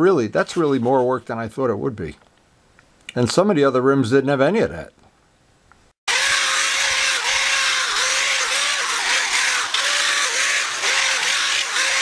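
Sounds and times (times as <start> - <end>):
power sander grinding metal: 6.1 - 12.0.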